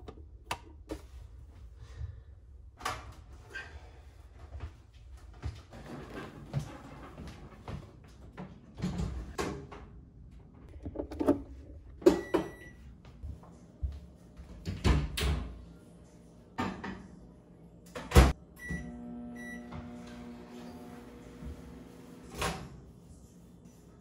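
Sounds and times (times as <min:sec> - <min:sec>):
microwave running hum: 0:10.8 - 0:13.0, 0:17.5 - 0:22.7
microwave keypad beeps: 0:12.1 - 0:12.8, 0:18.6 - 0:19.7.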